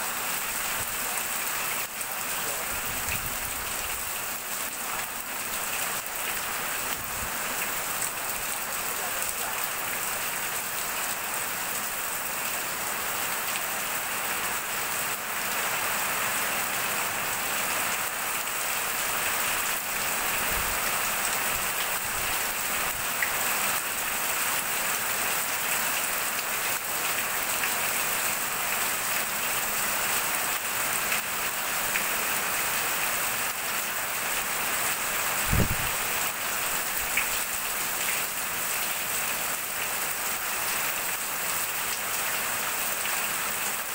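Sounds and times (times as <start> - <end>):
heavy rain splashing: 0.0 - 43.9
water pouring off roof eave: 0.1 - 43.9.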